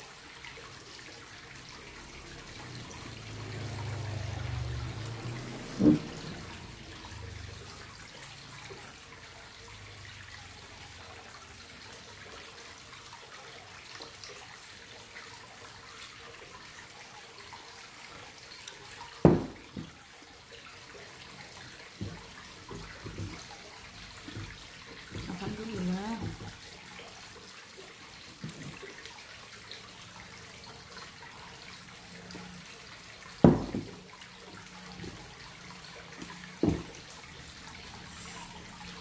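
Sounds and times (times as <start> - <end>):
glass cup knocking on table: 5.8 - 6.2, 19.2 - 19.9, 33.4 - 34.0, 36.6 - 36.9.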